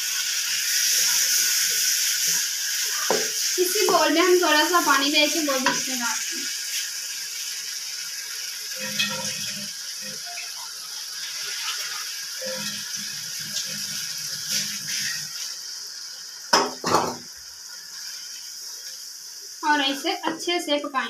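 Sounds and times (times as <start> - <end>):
water hitting hot pan: 0.0 - 17.4
masala sizzling in a wok: 0.0 - 21.0
wooden spatula scraping wok: 13.9 - 15.5.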